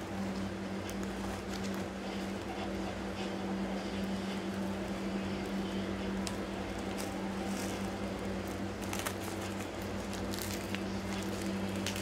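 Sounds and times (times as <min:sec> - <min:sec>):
steady low hum: 0:00.0 - 0:12.0
plastic package crinkling: 0:06.1 - 0:12.0.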